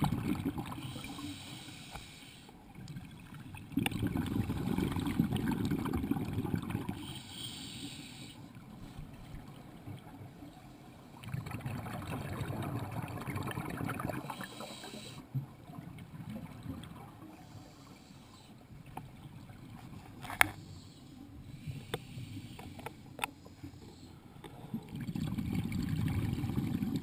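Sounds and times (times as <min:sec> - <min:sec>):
exhaled bubbles underwater: 0:00.0 - 0:01.2, 0:02.7 - 0:07.1, 0:11.2 - 0:14.8, 0:15.4 - 0:17.4, 0:24.7 - 0:27.0
regulator hissing inhale: 0:00.8 - 0:02.6, 0:07.0 - 0:09.1, 0:14.3 - 0:15.3, 0:17.4 - 0:18.6, 0:20.6 - 0:24.8.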